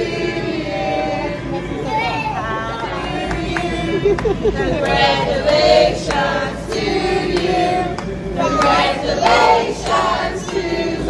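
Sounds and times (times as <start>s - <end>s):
group of people singing: 0.0s - 11.0s.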